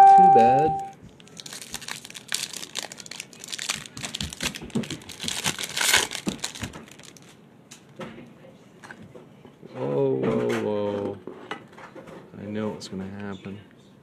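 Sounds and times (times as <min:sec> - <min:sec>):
foil wrapper crinkling and tearing: 0:01.1 - 0:07.4.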